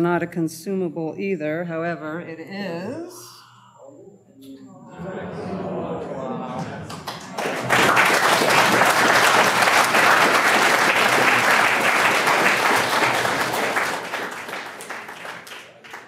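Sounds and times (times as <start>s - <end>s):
audience applauding: 6.5s - 16.0s.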